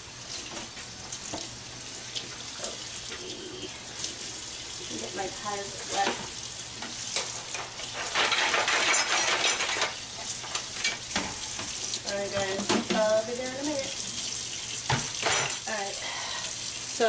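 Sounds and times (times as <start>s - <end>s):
tap water hissing into sink: 0.0s - 8.9s, 9.5s - 17.0s
dishes clattering: 7.2s - 13.1s, 14.9s - 15.7s.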